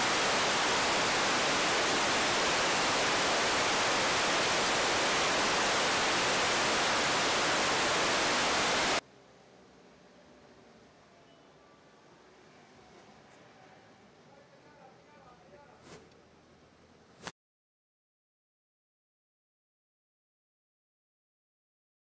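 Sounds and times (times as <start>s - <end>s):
static hiss: 0.0s - 9.0s.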